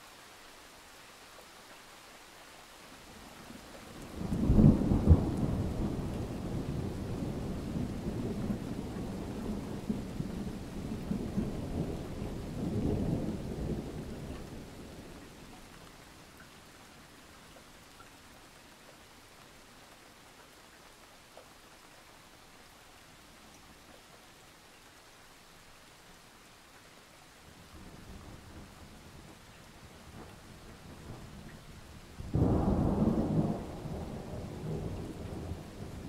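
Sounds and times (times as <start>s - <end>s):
steady rain falling: 0.0s - 36.0s
thunder rumbling: 4.1s - 15.2s, 32.2s - 36.0s.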